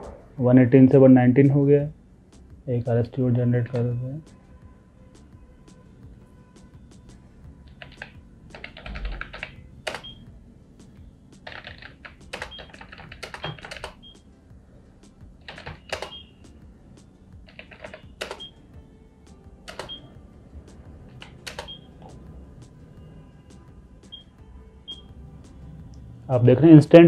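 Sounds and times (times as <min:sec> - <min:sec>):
fast typing on keyboard: 0:07.7 - 0:10.2, 0:11.4 - 0:14.2, 0:15.4 - 0:16.2, 0:17.5 - 0:18.5, 0:19.7 - 0:20.0, 0:21.1 - 0:22.1.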